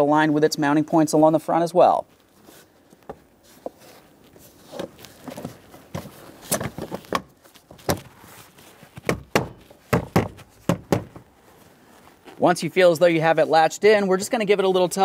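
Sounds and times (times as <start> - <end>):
handling rustle: 2.0 - 12.5
plastic panel knocks and clicks: 9.0 - 11.2.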